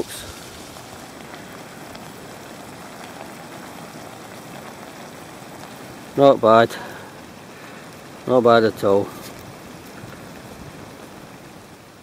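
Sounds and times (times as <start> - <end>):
vegetables sizzling in a pan: 0.0 - 12.0.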